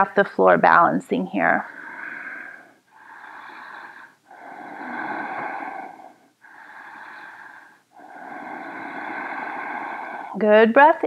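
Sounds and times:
woman breathing slowly: 0:01.6 - 0:11.0.

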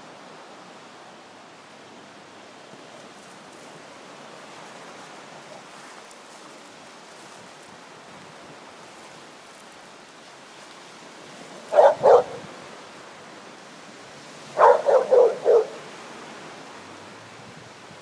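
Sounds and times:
small waves: 0:00.0 - 0:18.0
wind: 0:00.0 - 0:18.0
dog barking: 0:11.7 - 0:12.5, 0:14.6 - 0:15.9.

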